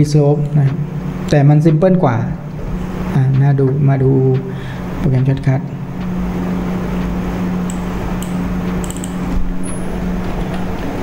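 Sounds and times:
low electrical hum and hiss: 0.0 - 11.0
computer keyboard typing: 7.0 - 11.0.

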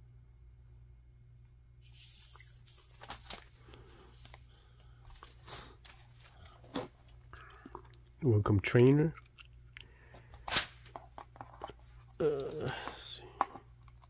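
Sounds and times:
book rustling against cloth: 1.8 - 4.4.

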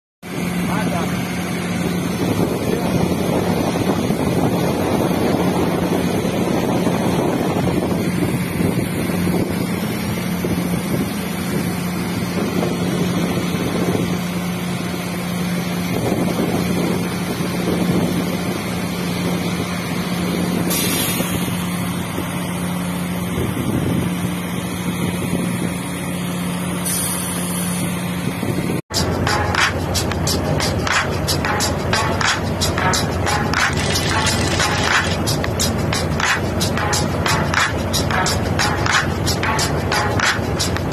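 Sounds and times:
wind gusts on microphone: 0.3 - 26.8, 27.7 - 28.8
rig machinery humming: 0.3 - 40.9.

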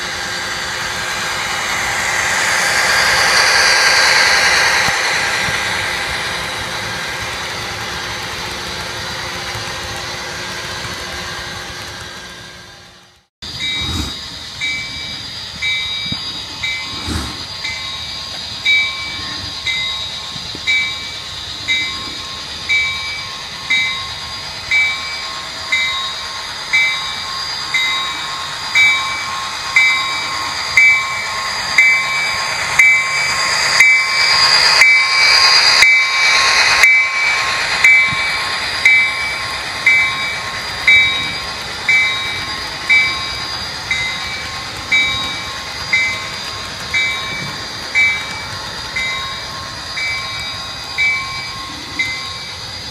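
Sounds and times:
electronic diesel engine drone: 0.0 - 52.9
locomotive bell ringing: 0.0 - 52.9.

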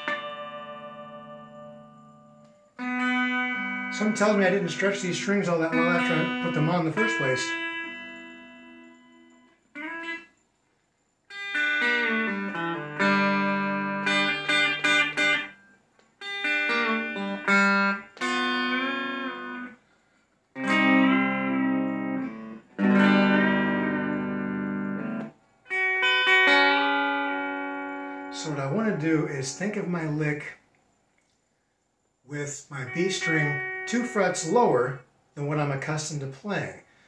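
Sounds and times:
clean electric guitar bent chords: 0.0 - 9.1, 16.4 - 19.7, 20.6 - 25.3, 32.3 - 35.0.

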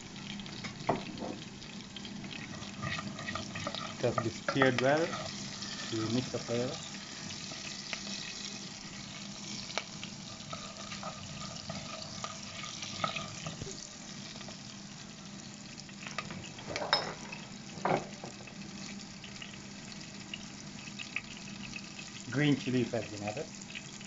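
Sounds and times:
spices sizzling in hot oil: 0.0 - 24.0
spoon scraping a pan: 2.3 - 8.3, 10.2 - 13.6.

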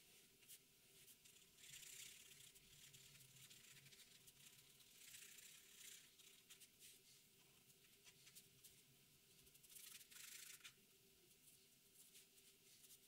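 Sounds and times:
marker pen scratching on paper: 0.4 - 7.1, 9.4 - 10.8.

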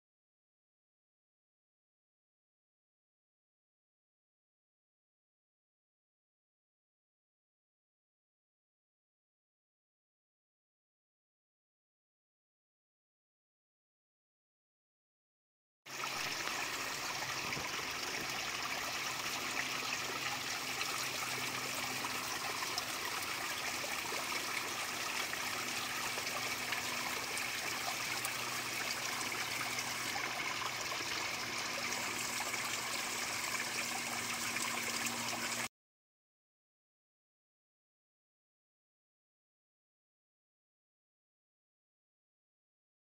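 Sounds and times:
stream trickling over rocks: 15.9 - 35.7.

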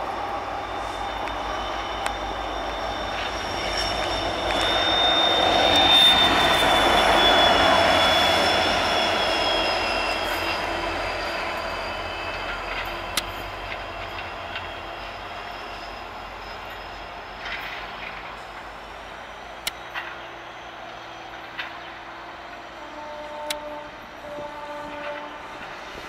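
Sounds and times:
high ringing tones: 0.0 - 17.9
diesel locomotive passing: 0.0 - 26.0.

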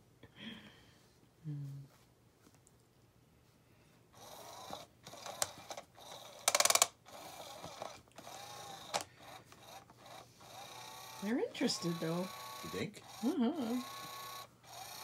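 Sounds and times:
toy motor whirring: 4.2 - 15.0.

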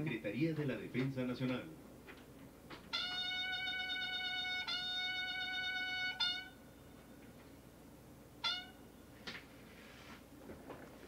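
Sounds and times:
bugle call: 2.9 - 7.2, 8.4 - 9.0.

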